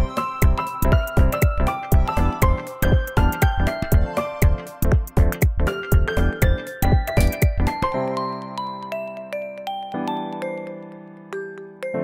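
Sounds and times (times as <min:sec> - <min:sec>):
background music with drum beat: 0:00.0 - 0:07.9.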